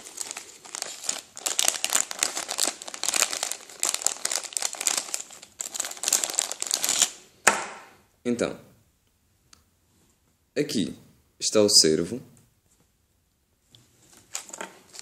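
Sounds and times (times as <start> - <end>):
plastic bag crinkling: 0.0 - 7.2, 14.1 - 15.0.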